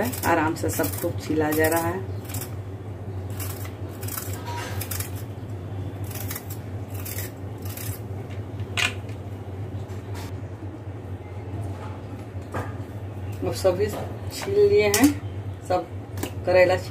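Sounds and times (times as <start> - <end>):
vegetable peeler scraping gourd skin: 0.0 - 2.6, 3.3 - 5.2, 6.0 - 8.1
steady low hum: 0.0 - 16.9.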